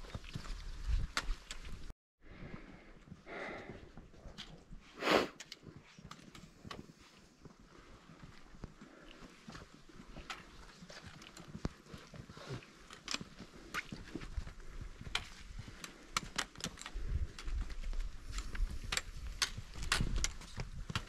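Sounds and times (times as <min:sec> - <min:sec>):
footsteps on rocky ground: 0:05.7 - 0:21.0.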